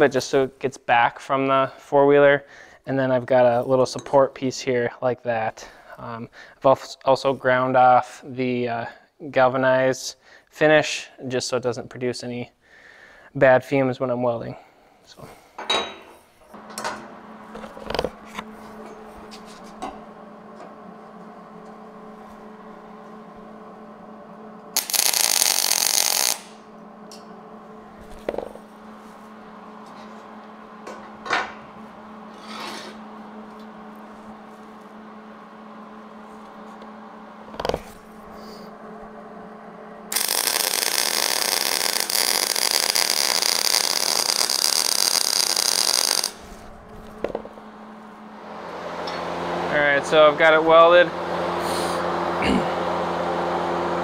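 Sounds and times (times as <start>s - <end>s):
steady hum: 14.4s - 54.0s
arc welding crackle: 17.4s - 30.8s, 40.1s - 48.2s.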